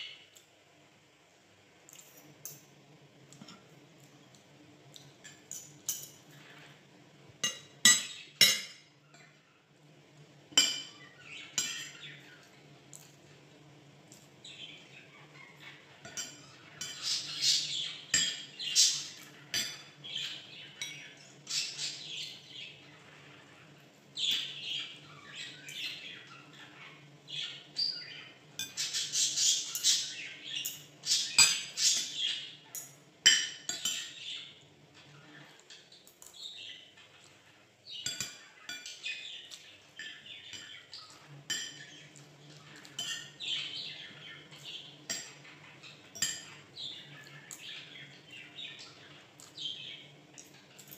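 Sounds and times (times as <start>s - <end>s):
cutlery clinking against bowls: 1.9s - 2.7s, 3.3s - 3.7s, 4.3s - 6.7s, 7.4s - 9.4s, 10.5s - 13.2s, 15.6s - 21.8s, 27.8s - 34.4s, 35.0s - 48.0s, 49.4s - 49.7s, 50.4s - 50.9s
bird chirping and squawking: 14.6s - 32.7s.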